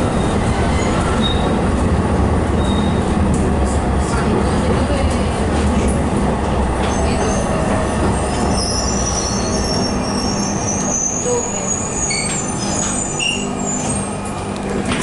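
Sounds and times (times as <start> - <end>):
tram motors and wheels rumbling: 0.0 - 15.0
high metallic squeal: 8.5 - 14.3.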